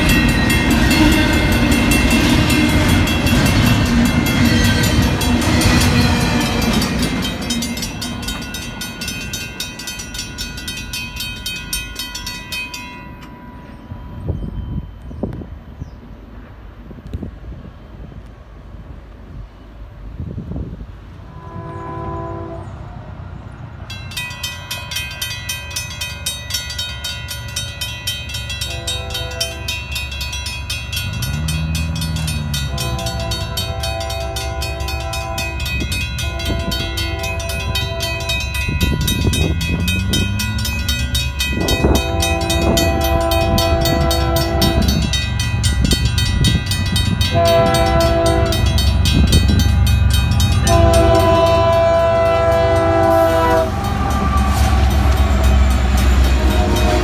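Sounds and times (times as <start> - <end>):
train air horn blasts: 0.0 - 7.6, 21.2 - 23.0, 28.6 - 29.8, 32.2 - 40.4, 41.5 - 57.0
railroad crossing bell ringing: 0.0 - 15.8, 23.8 - 57.0
train rumble: 0.0 - 57.0.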